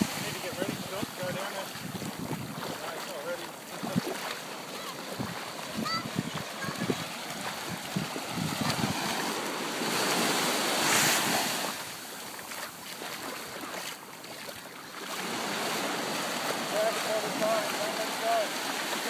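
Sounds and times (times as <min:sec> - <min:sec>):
wind buffeting microphone: 0:00.0 - 0:11.6
surf breaking on sandy beach: 0:00.0 - 0:13.8, 0:15.0 - 0:19.0.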